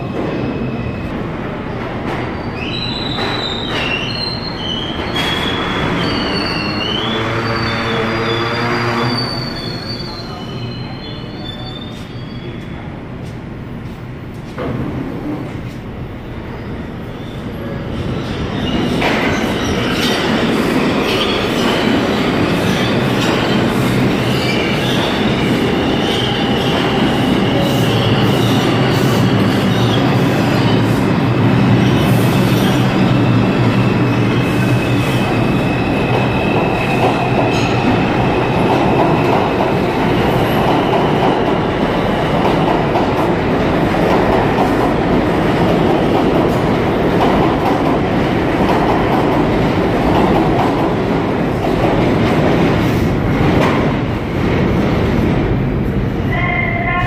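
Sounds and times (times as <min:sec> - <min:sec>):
subway train rumbling: 0:00.0 - 0:57.0
high wheel squeal: 0:02.4 - 0:12.8.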